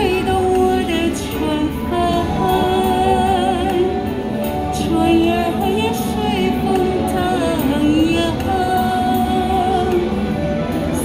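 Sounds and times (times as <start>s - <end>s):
accompanying music: 0.0s - 11.0s
woman singing slow song: 0.0s - 11.0s.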